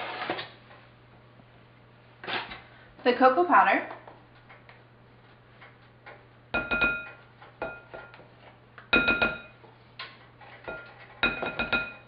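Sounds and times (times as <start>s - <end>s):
spoon tapping glass bowl: 6.6s - 8.2s, 8.9s - 9.6s, 10.8s - 12.0s.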